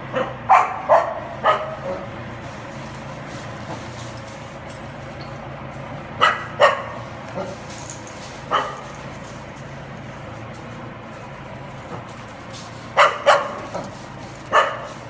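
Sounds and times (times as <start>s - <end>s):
dog barking: 0.1s - 2.1s, 6.2s - 7.6s, 8.5s - 9.0s, 13.0s - 15.0s.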